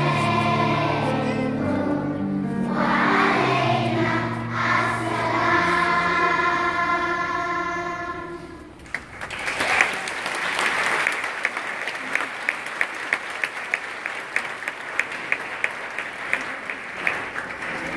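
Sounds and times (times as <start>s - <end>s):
audience applause: 8.8s - 17.9s
person clapping nearby: 8.8s - 17.9s.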